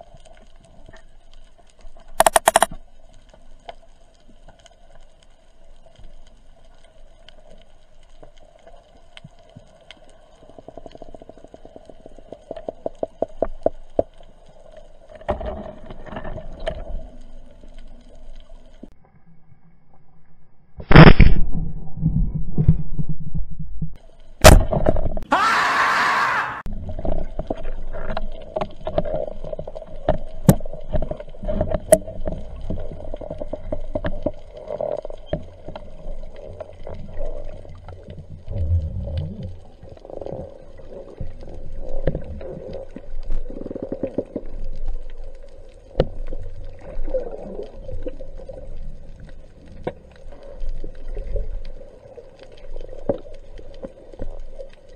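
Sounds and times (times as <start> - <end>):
scattered sharp clicks and crackles: 0.0 - 19.2, 26.8 - 54.9
underwater rumble and water movement: 0.0 - 25.3, 26.6 - 54.9
speargun click: 2.2 - 2.7.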